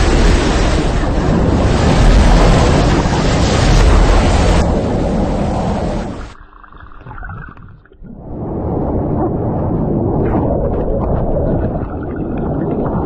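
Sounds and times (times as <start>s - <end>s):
torrent of water gushing: 0.0s - 6.4s.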